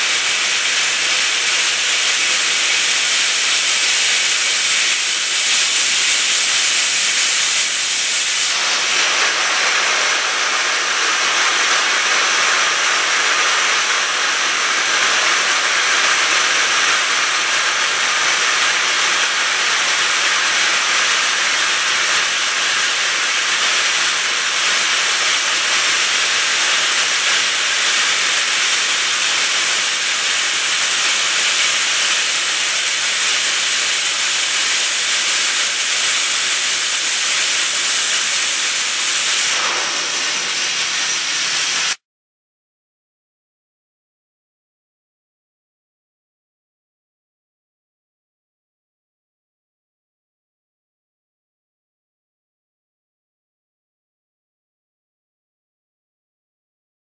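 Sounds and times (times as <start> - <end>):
machining centre drill hiss: 0.0 - 42.0.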